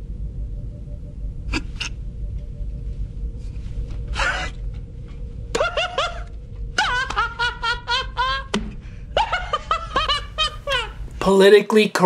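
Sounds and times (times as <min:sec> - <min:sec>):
man laughing heartily: 0:05.5 - 0:11.1.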